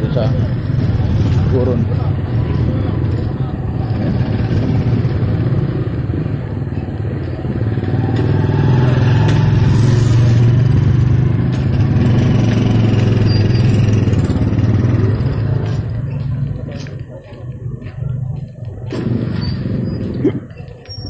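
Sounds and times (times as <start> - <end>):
motorcycle engine droning: 1.9 - 16.6.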